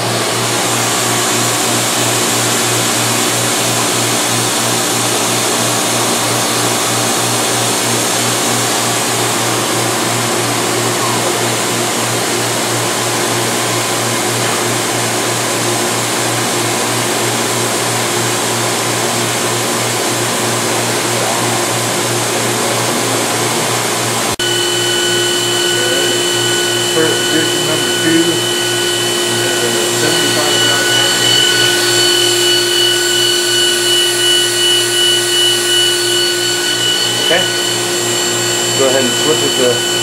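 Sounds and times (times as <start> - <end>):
grinding machine humming: 0.0 - 40.0
low pulsing drone: 20.7 - 40.0.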